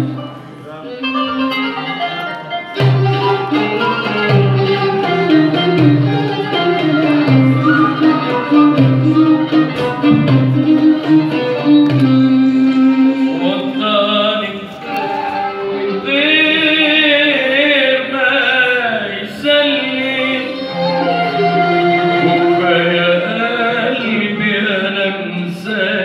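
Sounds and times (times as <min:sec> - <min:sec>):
violin melody: 0:00.0 - 0:26.0
man singing: 0:10.6 - 0:26.0.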